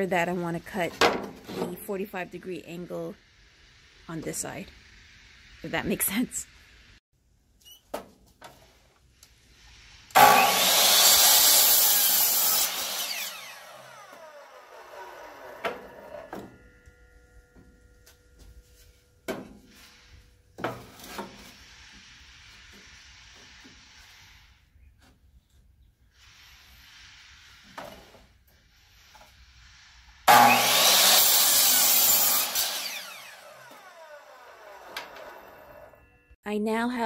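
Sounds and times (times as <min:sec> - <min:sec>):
miter saw cutting wood: 0:10.1 - 0:16.4, 0:30.3 - 0:36.0.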